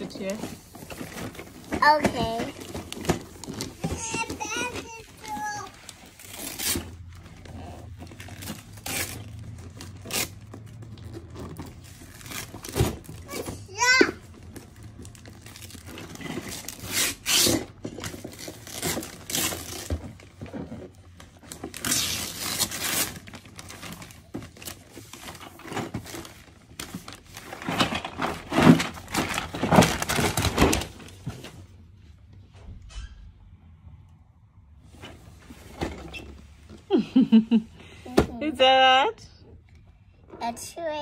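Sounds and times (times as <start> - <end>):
wrapping paper tearing and rustling: 0.0 - 20.4, 21.2 - 31.4.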